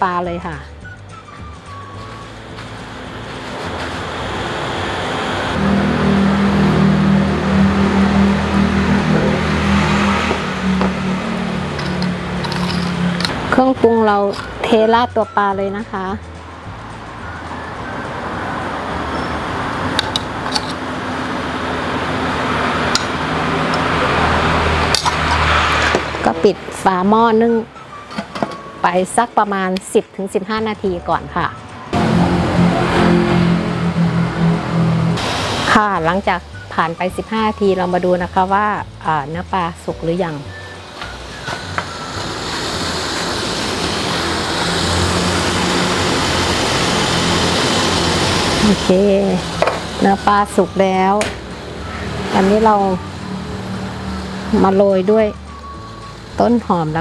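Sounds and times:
steam rushing from a pot: 2.7 - 6.4, 35.2 - 37.4, 40.6 - 50.6
spoon scraping bowl: 11.8 - 13.3.

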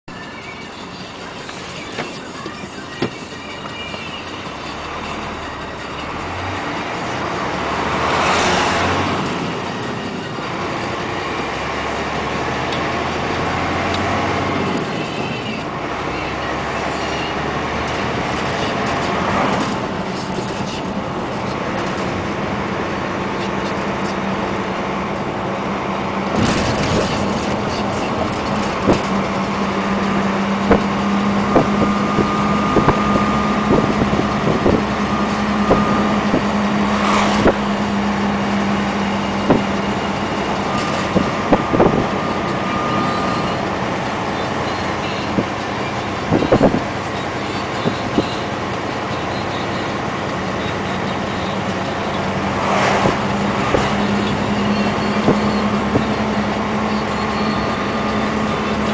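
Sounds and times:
diesel engine drone: 0.0 - 58.9
road noise: 0.0 - 58.9.

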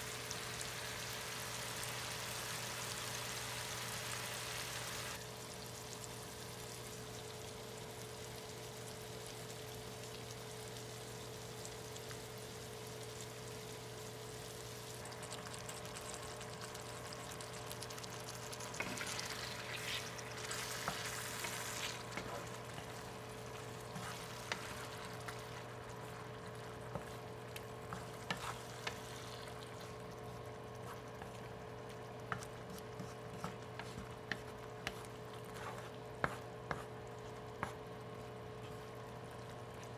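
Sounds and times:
food sizzling in a frying pan: 0.0 - 29.9
wet sizzle: 0.0 - 39.9
wooden spatula scraping pan: 23.8 - 25.5, 27.9 - 29.2.

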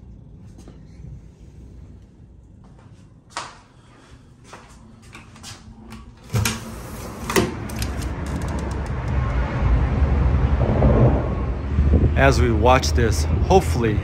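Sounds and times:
latch clicks: 5.9 - 9.4
window being pushed open: 6.2 - 9.3
street noise rumble: 6.6 - 14.0.

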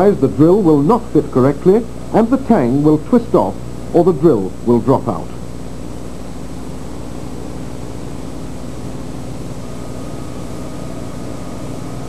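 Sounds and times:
steady layered low hum: 0.0 - 12.0
faint higher tone: 9.0 - 12.0.

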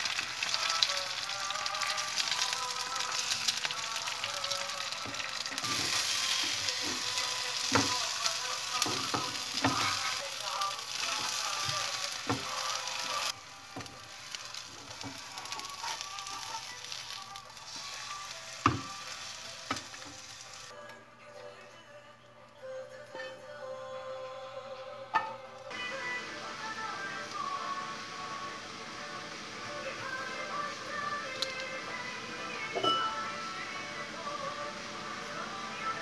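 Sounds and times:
egg sizzling in a pan: 0.0 - 20.7.

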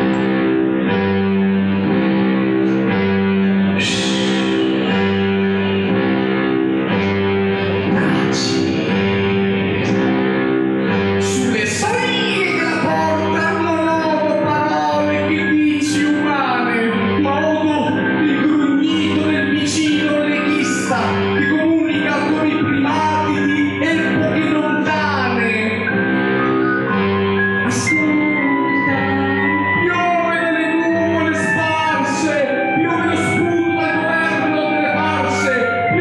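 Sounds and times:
pulsing low chord: 0.0 - 36.0
man singing: 3.6 - 5.8, 7.8 - 9.4, 11.2 - 26.4, 27.6 - 36.0.

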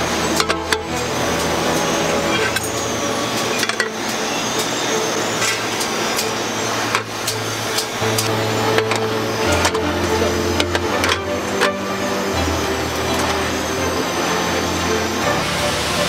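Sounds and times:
factory machinery hum: 0.0 - 16.0
metal pans clinking: 3.4 - 9.8.

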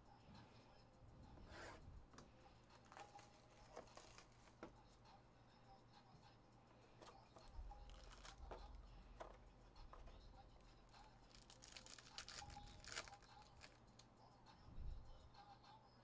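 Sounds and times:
foil pack crinkling and tearing: 2.9 - 4.4, 7.9 - 8.4, 11.3 - 13.8.

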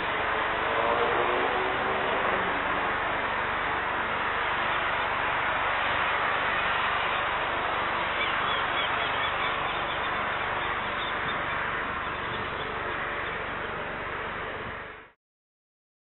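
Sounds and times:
jet engines rushing: 0.0 - 15.0.

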